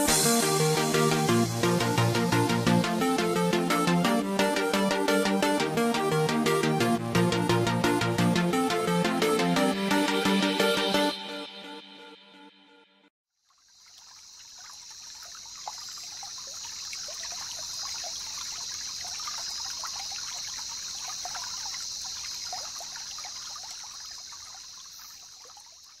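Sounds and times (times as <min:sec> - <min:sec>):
water trickling and bubbling: 0:13.4 - 0:26.0.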